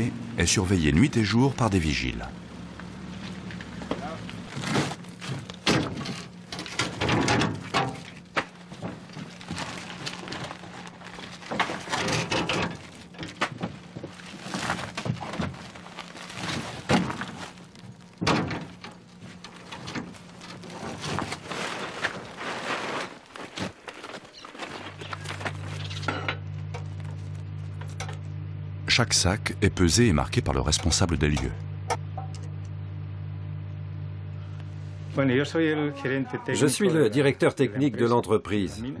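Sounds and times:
low steady hum: 0.0 - 39.0
sacks rustling: 8.5 - 12.0, 12.8 - 25.9
sacks thudding down: 20.0 - 25.7.

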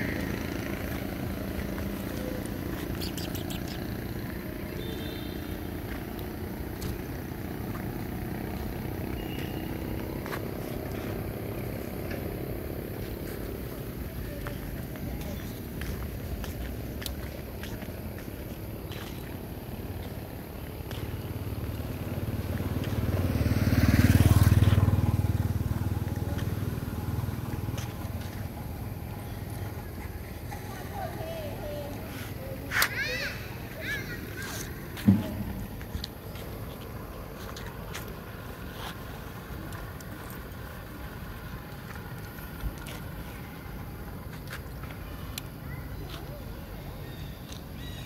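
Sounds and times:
low outdoor rumble: 0.0 - 47.4
vehicle engine passing: 19.5 - 42.2.

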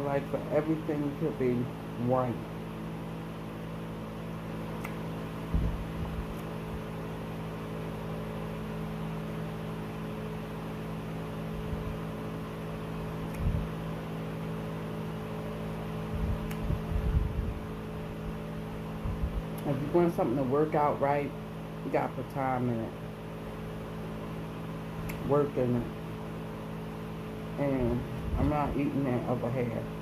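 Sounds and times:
low electrical hum: 0.0 - 30.0
faint small clicks: 4.8 - 5.0, 13.2 - 13.5
soft low thumps: 5.5 - 6.3, 19.0 - 19.5.

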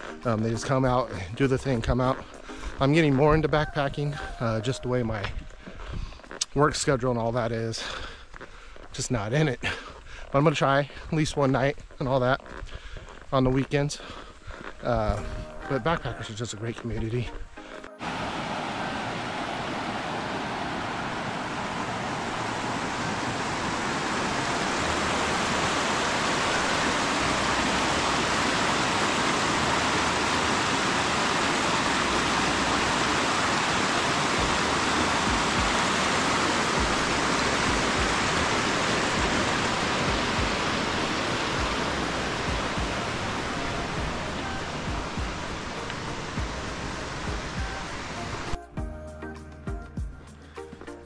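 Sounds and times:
flowing water rushing: 0.0 - 5.6, 17.4 - 48.6.

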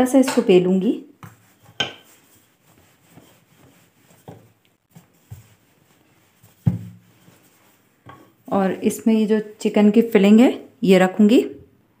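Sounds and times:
rolling pin rubbing on dough: 1.2 - 9.9.

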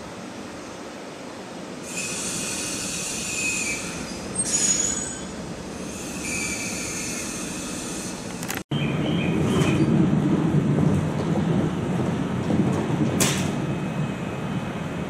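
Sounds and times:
low train rumble: 0.0 - 15.0
train wheel squeal: 1.8 - 8.3, 9.1 - 9.9.

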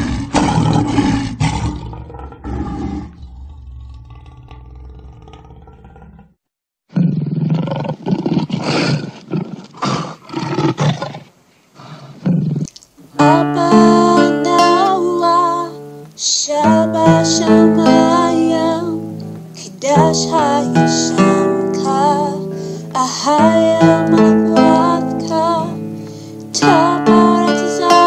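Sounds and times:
growling roar: 0.0 - 12.7
music with sustained notes: 13.2 - 28.0.

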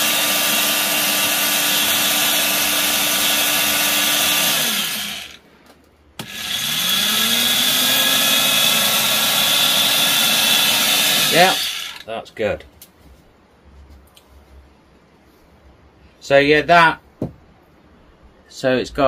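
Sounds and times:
belt sander whining: 0.0 - 5.4, 6.2 - 12.1.

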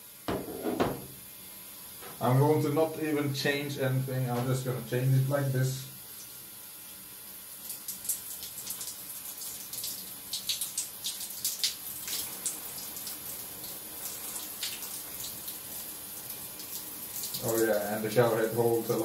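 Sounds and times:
steady hiss: 0.0 - 19.0
water splattering on tiled floor: 7.6 - 17.7.

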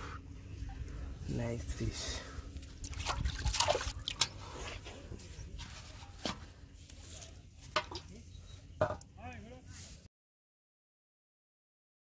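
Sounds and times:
water sloshing in a pot: 1.9 - 6.4
fish flapping in water: 2.8 - 4.3
short sharp splashes and knocks: 2.8 - 4.4.

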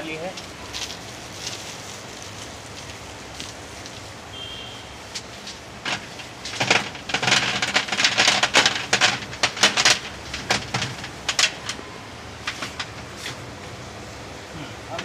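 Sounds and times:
pebbles clattering on glass: 5.8 - 11.7.

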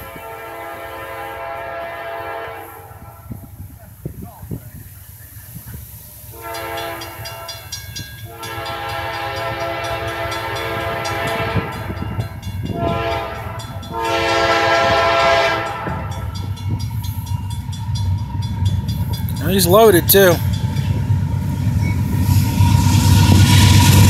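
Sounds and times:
locomotive horn blasts: 0.0 - 3.3, 6.3 - 7.7, 8.3 - 12.1, 12.7 - 16.3
railroad crossing bell ringing: 6.2 - 23.3.

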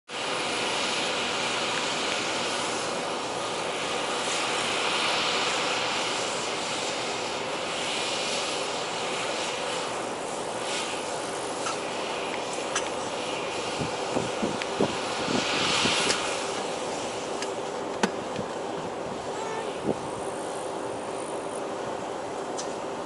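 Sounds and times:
combine harvester drone: 0.1 - 23.0.

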